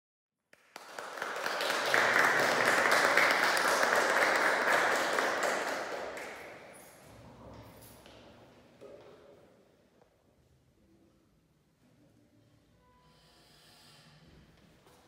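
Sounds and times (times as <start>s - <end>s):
audience applauding: 0.6s - 6.8s.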